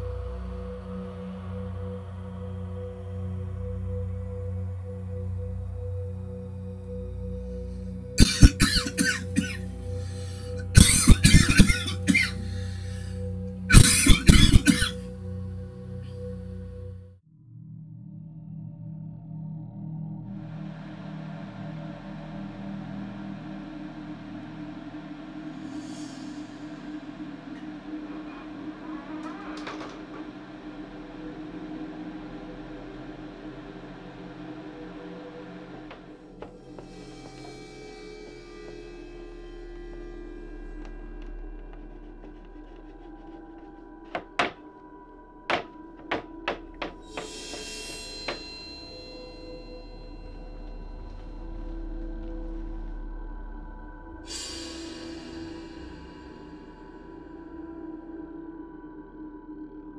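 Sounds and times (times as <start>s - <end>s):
droning ambient music: 0.0s - 59.9s
low hum: 0.0s - 59.9s
person coughing: 8.2s - 9.7s, 10.5s - 12.7s, 13.7s - 15.0s
door creaking: 27.6s - 30.7s, 44.0s - 48.5s.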